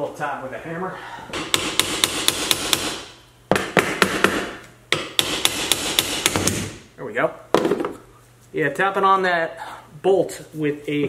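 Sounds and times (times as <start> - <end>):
hammer tapping on metal: 1.4 - 6.6.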